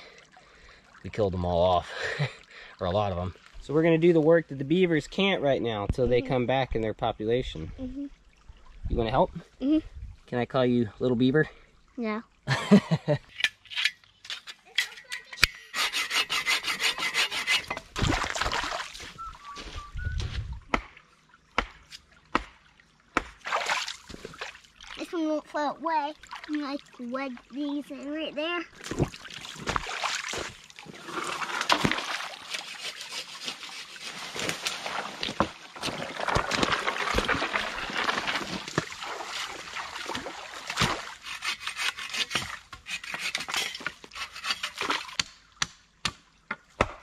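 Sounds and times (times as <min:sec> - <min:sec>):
creek water trickling: 0:00.0 - 0:47.0
saw cutting through wood: 0:15.3 - 0:17.8, 0:32.4 - 0:34.4, 0:41.2 - 0:44.9
person wading through water: 0:17.3 - 0:25.2, 0:26.1 - 0:42.6
splashes and knocks: 0:17.6 - 0:25.2, 0:26.2 - 0:27.6, 0:28.7 - 0:47.0.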